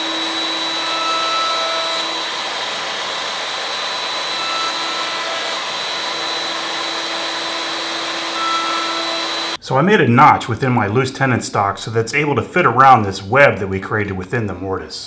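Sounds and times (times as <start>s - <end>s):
router whining cutting wood: 0.0s - 9.6s.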